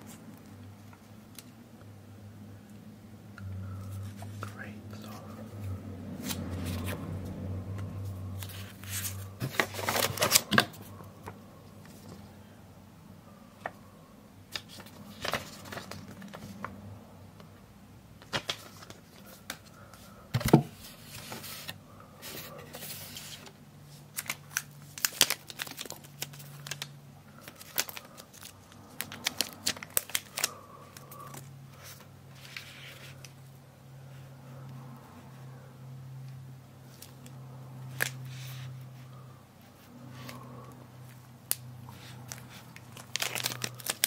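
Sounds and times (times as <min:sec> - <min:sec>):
packaging clicks and rustles: 0:08.4 - 0:12.1, 0:14.6 - 0:16.7, 0:20.4 - 0:33.4, 0:41.1 - 0:44.0.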